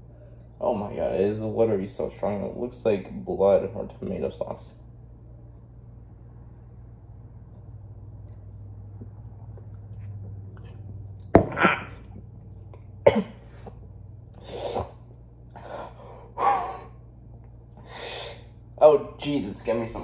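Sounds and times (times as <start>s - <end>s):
low room hum: 0.0s - 20.0s
person coughing: 13.0s - 13.7s.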